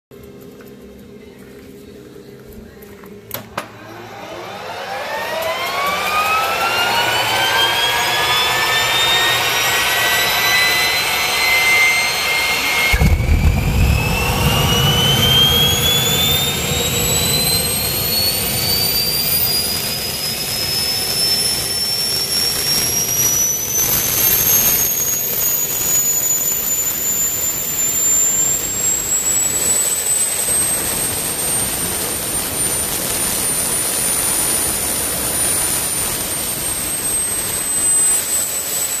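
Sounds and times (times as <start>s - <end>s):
turbine whine rising in pitch: 3.3s - 39.0s
low rushing noise: 10.2s - 20.8s.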